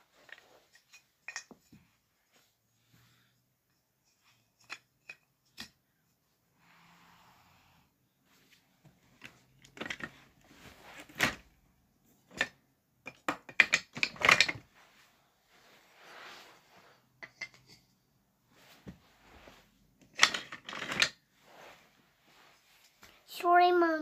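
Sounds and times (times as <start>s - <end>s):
soft rustling on carpet: 8.2s - 9.1s, 14.7s - 17.0s, 18.5s - 19.8s, 21.4s - 23.3s
wooden track pieces clacking: 9.2s - 10.1s, 12.3s - 14.6s, 20.0s - 21.2s.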